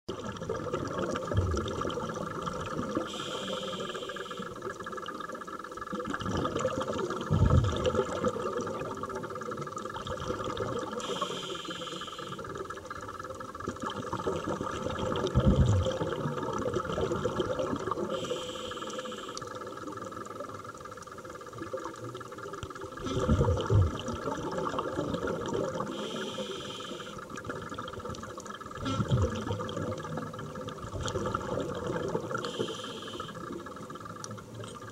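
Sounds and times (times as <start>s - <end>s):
steady underwater hiss: 0.1s - 34.9s
regulator hissing inhalation: 3.0s - 4.6s, 11.0s - 12.5s, 18.1s - 19.5s, 25.9s - 27.2s, 32.4s - 33.5s
rumbling gush of exhaust bubbles: 6.0s - 9.0s, 13.9s - 18.1s, 23.0s - 25.9s, 28.8s - 32.4s.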